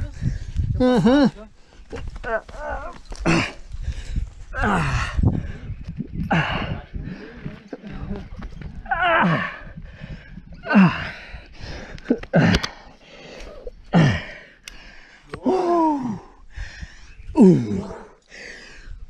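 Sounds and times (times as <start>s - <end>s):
gasps and grunts of effort: 2.2s - 4.0s, 8.8s - 18.8s
person breathing hard: 9.6s - 19.0s.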